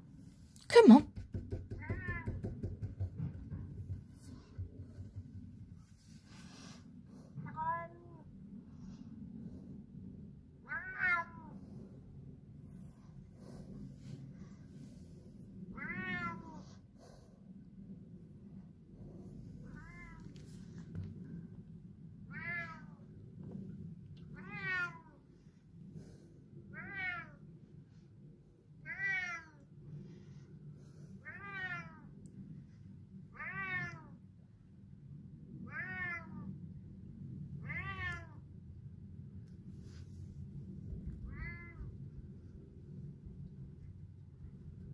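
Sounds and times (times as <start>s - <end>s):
cat meowing: 10.6s - 11.5s, 15.8s - 16.6s, 22.3s - 23.0s, 24.4s - 25.1s, 26.8s - 27.4s, 28.8s - 29.6s, 31.2s - 32.1s, 33.4s - 34.2s, 35.7s - 36.5s, 37.6s - 38.4s, 41.2s - 41.9s.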